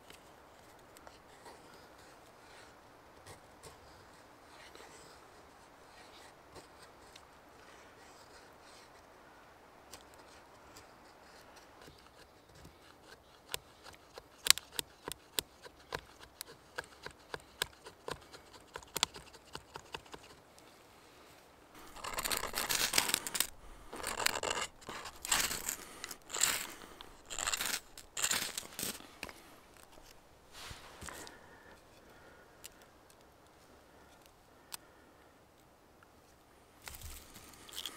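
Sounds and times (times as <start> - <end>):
knife carving a stick: 0.1 - 9.1, 9.9 - 20.4, 21.8 - 33.2
ferro rod scraping: 21.8 - 32.0.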